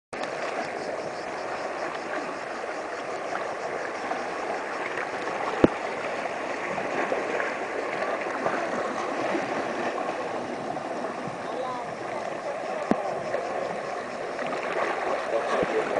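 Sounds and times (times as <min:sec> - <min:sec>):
small waves washing over rocks: 0:00.2 - 0:15.9.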